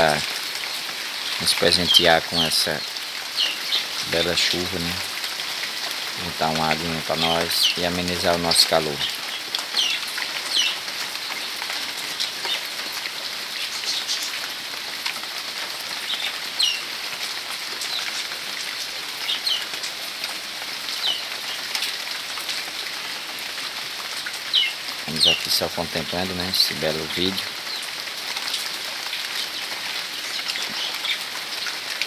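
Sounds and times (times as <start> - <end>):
rain falling: 0.0 - 32.0.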